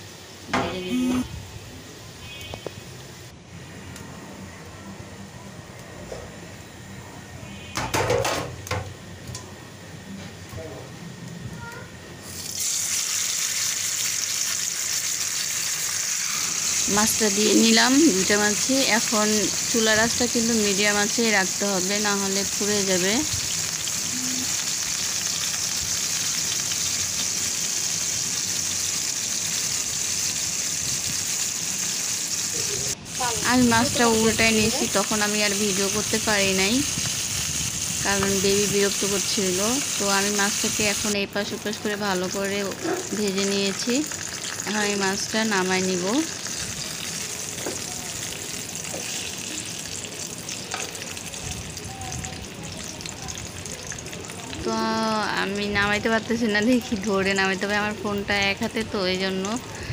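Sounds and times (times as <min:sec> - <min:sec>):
fish sizzling in hot oil: 0:12.2 - 0:59.9.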